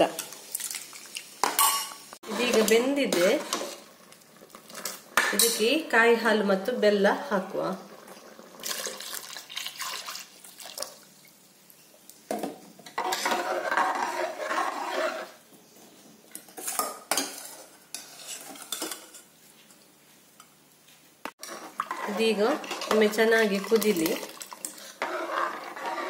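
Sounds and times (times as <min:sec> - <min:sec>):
ladle stirring and scraping pot: 0:01.4 - 0:05.8, 0:12.3 - 0:15.4, 0:16.3 - 0:19.3, 0:21.3 - 0:26.0
liquid pouring into pot: 0:08.1 - 0:11.1, 0:23.6 - 0:24.9.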